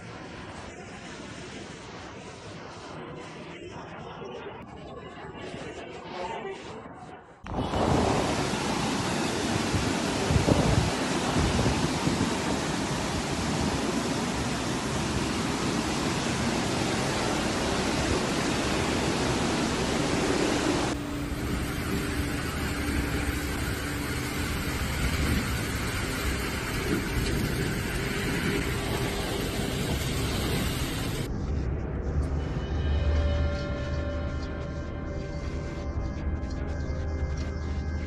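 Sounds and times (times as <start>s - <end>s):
outdoor noise: 0.0s - 38.0s
rushing floodwater: 7.5s - 31.3s.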